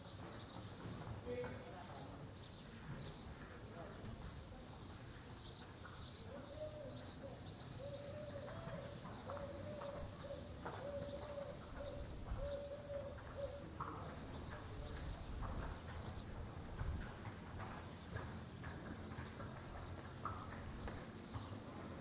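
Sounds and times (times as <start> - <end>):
small birds chirping: 0.0 - 22.0
dove cooing: 6.2 - 15.0.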